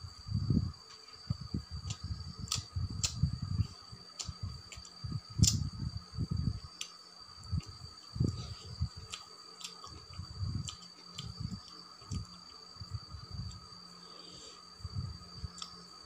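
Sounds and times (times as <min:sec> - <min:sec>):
soft chewing: 0:06.8 - 0:12.7.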